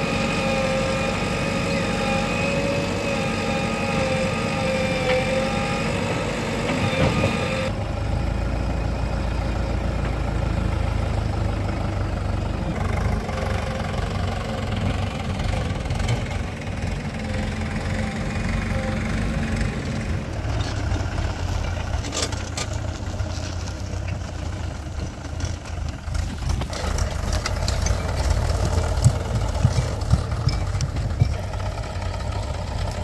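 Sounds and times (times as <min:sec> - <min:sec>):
diesel engines running: 0:00.0 - 0:33.0
deep heavy rumble: 0:22.8 - 0:33.0.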